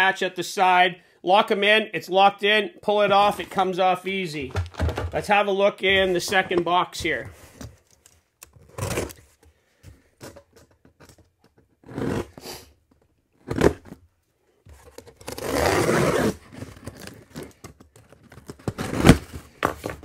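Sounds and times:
knife scraping box tape: 8.6s - 9.2s, 11.8s - 12.8s, 13.4s - 14.0s, 14.8s - 19.4s
cardboard tearing: 8.6s - 9.3s, 11.8s - 12.7s, 13.4s - 14.0s, 14.8s - 20.0s.

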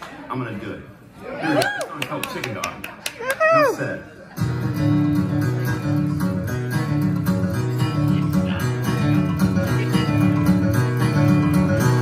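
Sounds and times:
solo acoustic guitar: 4.4s - 12.0s.

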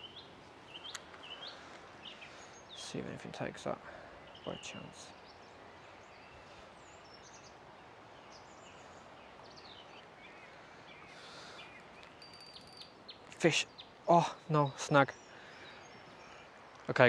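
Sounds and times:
faint bird chirps: 0.0s - 7.6s, 8.2s - 16.9s
river flowing: 5.0s - 14.2s.

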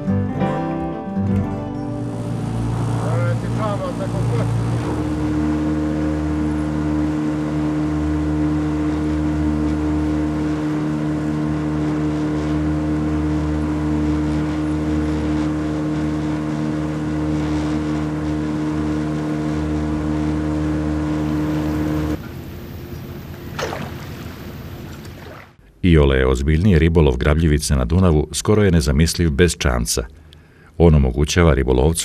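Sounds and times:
boat engine running: 1.4s - 25.7s.

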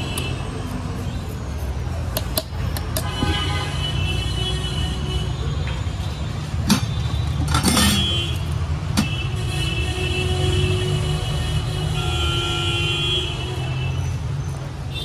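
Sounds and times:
street traffic rumble: 0.0s - 15.0s
utensils clattering: 7.4s - 8.1s.

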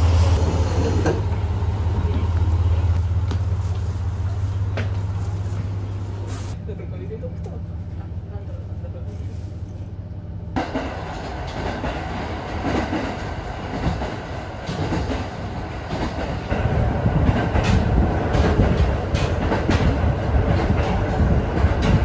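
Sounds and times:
diesel train cabin hum: 0.0s - 22.0s
wheels clicking over rail joints: 10.6s - 22.0s.

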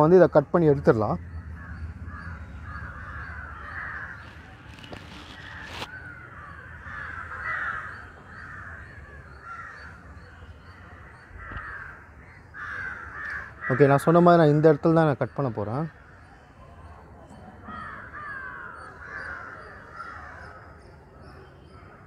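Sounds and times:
crows cawing: 1.2s - 14.5s, 17.4s - 20.8s.

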